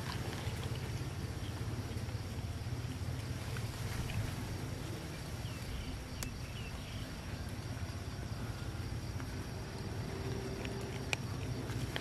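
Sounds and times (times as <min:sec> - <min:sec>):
cat chewing dry kibble: 0:00.0 - 0:01.6, 0:06.2 - 0:12.0
low outdoor rumble: 0:00.0 - 0:12.0.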